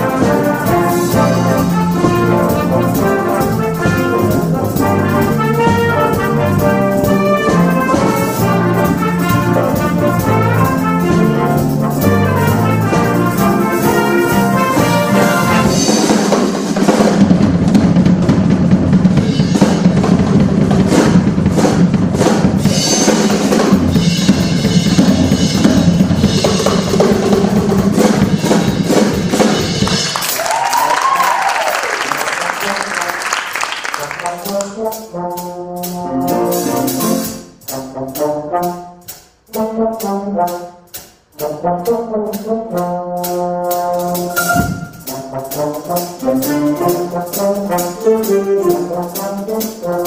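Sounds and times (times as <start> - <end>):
brass section playing: 0.0 - 17.0, 29.3 - 50.0
piano: 0.0 - 38.9, 42.3 - 50.0
bass: 0.0 - 50.0
drum kit: 0.0 - 50.0.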